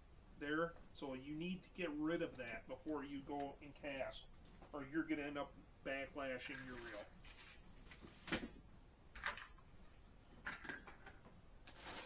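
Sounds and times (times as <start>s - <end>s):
packaging rustles: 11.6s - 12.0s.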